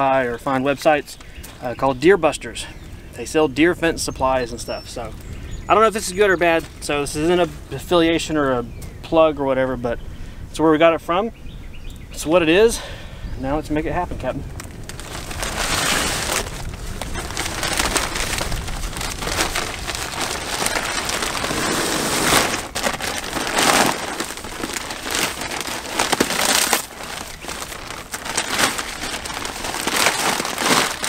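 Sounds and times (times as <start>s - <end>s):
plastic bag crinkling: 14.6s - 31.0s.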